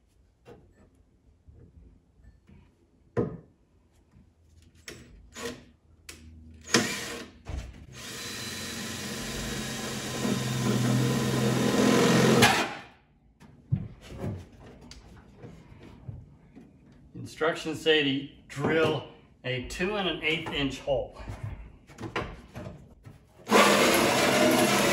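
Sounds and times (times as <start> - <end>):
drill hole saw cutting metal: 8.0 - 12.8, 23.5 - 24.9.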